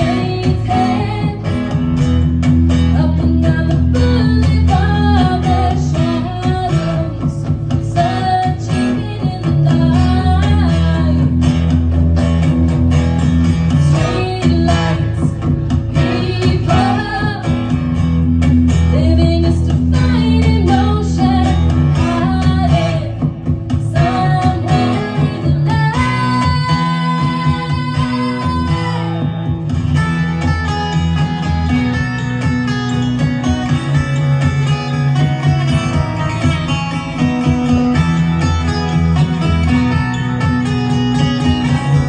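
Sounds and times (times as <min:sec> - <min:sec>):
woman singing into microphone: 0:00.0 - 0:02.0, 0:02.9 - 0:11.5, 0:13.8 - 0:17.8, 0:18.9 - 0:29.6
low bass notes: 0:00.0 - 0:42.0
strummed acoustic guitar: 0:00.0 - 0:42.0.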